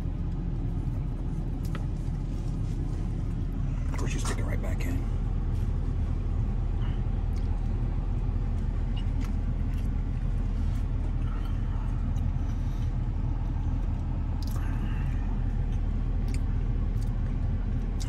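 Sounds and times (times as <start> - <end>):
vehicle idling rumble: 0.0 - 18.0
person chewing: 8.4 - 18.0.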